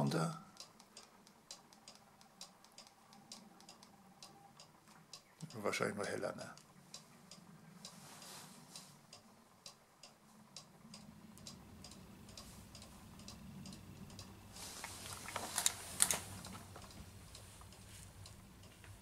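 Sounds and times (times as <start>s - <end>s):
clock ticking: 0.0s - 8.0s, 8.7s - 14.5s, 16.4s - 19.0s
sharp clicks: 0.5s - 8.0s, 9.1s - 19.0s
handling rustle: 14.6s - 16.8s.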